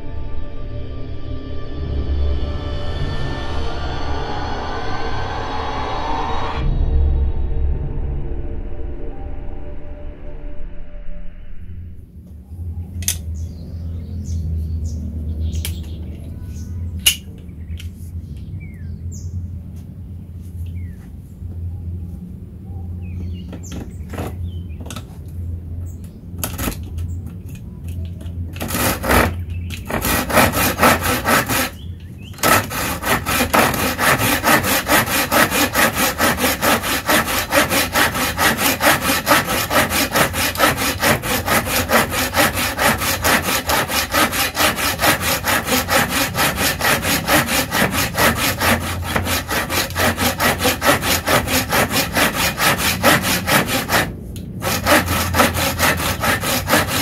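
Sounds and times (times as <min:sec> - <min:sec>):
hand saw rasping through wood: 0:28.5 - 0:57.0.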